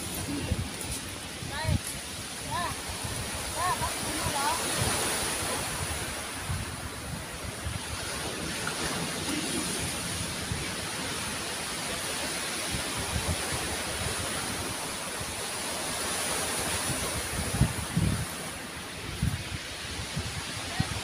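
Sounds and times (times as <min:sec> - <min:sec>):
surf on a stony shore: 0:00.0 - 0:21.0
wind buffeting the microphone: 0:00.0 - 0:21.0.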